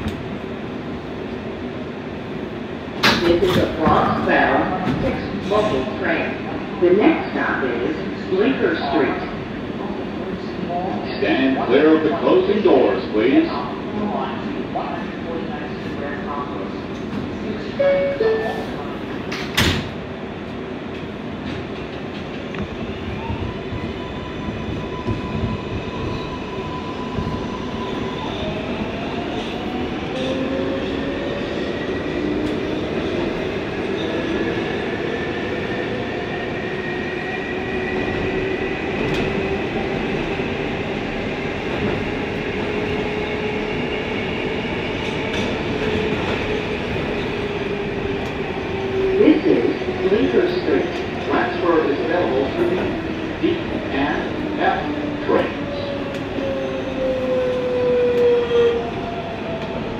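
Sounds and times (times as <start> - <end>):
train wheels rumbling on rails: 15.8 - 59.9.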